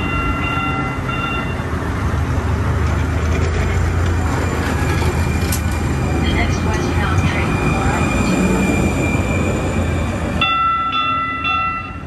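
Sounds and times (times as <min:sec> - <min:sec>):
train rumbling: 0:00.0 - 0:12.0.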